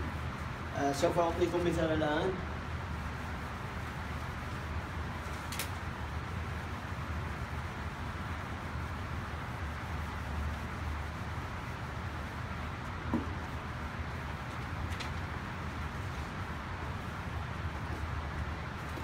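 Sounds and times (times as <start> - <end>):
eraser wiping whiteboard: 0.0 - 19.0
low room hum: 0.0 - 19.0.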